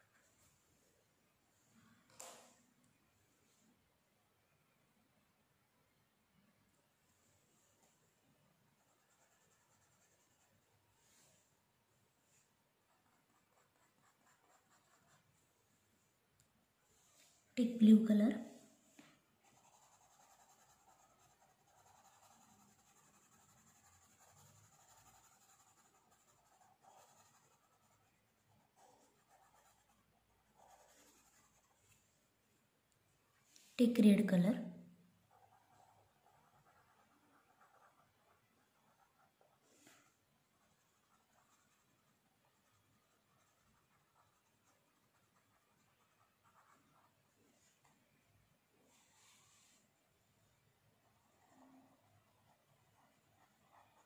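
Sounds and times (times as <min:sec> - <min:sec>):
pencil scratching on paper: 0:08.8 - 0:11.3, 0:12.3 - 0:15.4, 0:19.4 - 0:32.1, 0:35.3 - 0:47.9, 0:48.9 - 0:49.9, 0:51.0 - 0:54.0.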